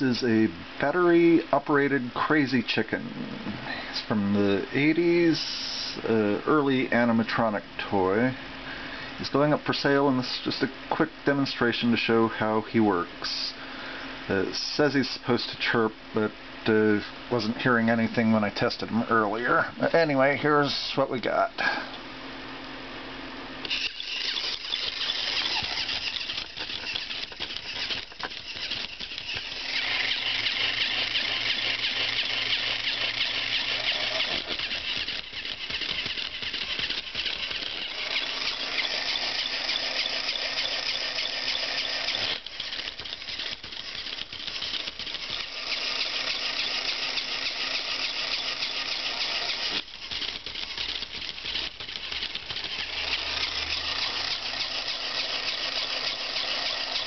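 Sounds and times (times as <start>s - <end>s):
toy motor and gears whirring: 0.0s - 7.5s, 23.6s - 57.0s.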